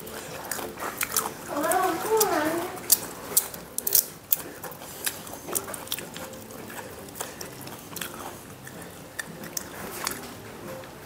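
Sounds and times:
chewing: 0:00.0 - 0:11.0
shrimp shells cracking: 0:02.8 - 0:10.4.

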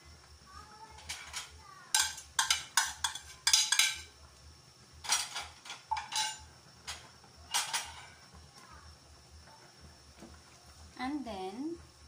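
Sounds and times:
utensil clinking against bowl and pot: 0:01.0 - 0:04.1, 0:05.0 - 0:08.2.

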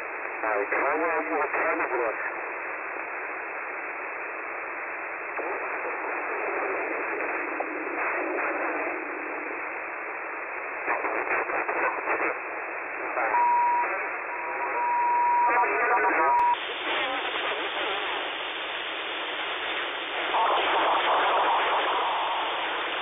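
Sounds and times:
radio static hiss: 0:00.0 - 0:23.0
garbled radio voices: 0:00.4 - 0:02.4, 0:10.8 - 0:18.2, 0:20.2 - 0:23.0.

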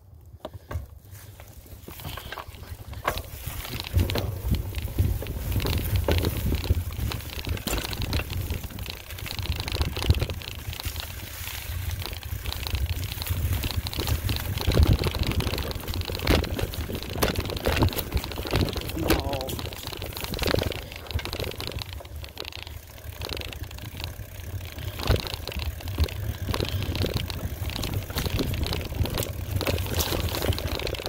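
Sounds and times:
mountain bike rattling: 0:00.0 - 0:31.0
wind buffeting microphone: 0:02.8 - 0:22.4.

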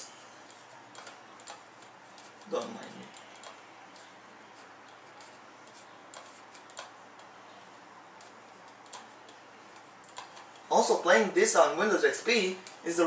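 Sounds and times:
computer mouse clicking: 0:00.4 - 0:07.4, 0:08.2 - 0:10.7.

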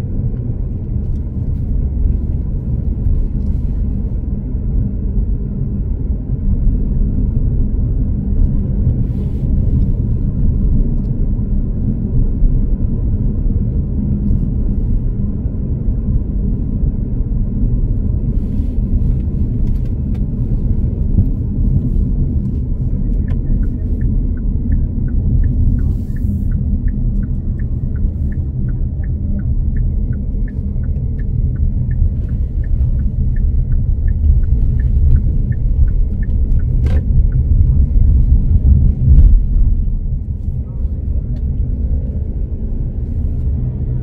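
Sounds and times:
road vehicle rumble: 0:00.0 - 0:44.0
light ticking: 0:23.2 - 0:39.2.

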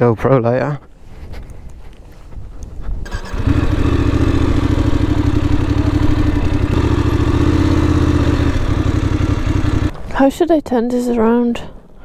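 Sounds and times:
motorcycle engine starting and idling: 0:03.0 - 0:10.2.

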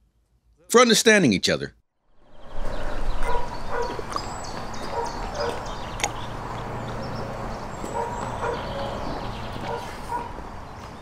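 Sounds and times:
dog barking: 0:03.2 - 0:04.0, 0:04.9 - 0:05.7, 0:07.9 - 0:10.4.

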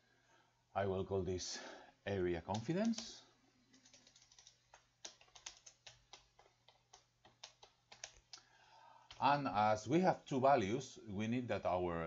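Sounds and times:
faint keyboard typing: 0:02.4 - 0:09.5.

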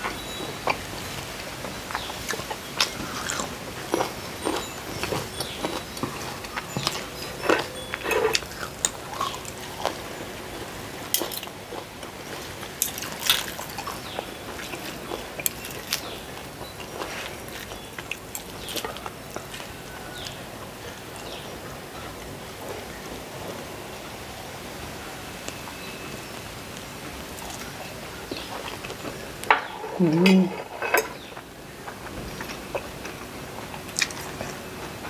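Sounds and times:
wet chewing: 0:01.9 - 0:22.8, 0:31.1 - 0:34.6.

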